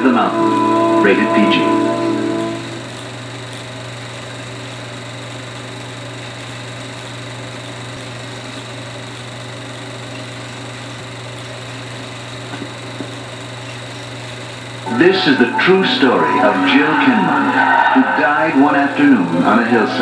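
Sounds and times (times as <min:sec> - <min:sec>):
low hum with hiss: 0:00.0 - 0:05.0, 0:09.7 - 0:20.0.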